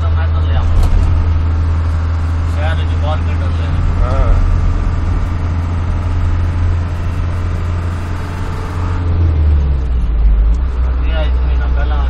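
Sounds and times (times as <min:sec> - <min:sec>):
car engine drone: 0:00.0 - 0:12.0
tyre and wind noise: 0:00.7 - 0:02.4.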